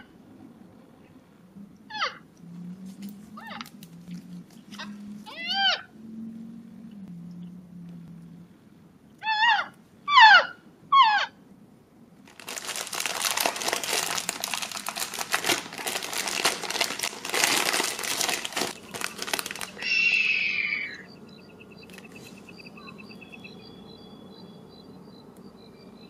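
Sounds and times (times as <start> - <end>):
high-pitched animal call: 1.8 - 2.3, 3.3 - 3.7, 4.7 - 6.0, 9.2 - 11.4, 18.3 - 24.6
plastic bag crinkling: 12.2 - 20.2
animal calls bending in pitch: 19.7 - 21.1.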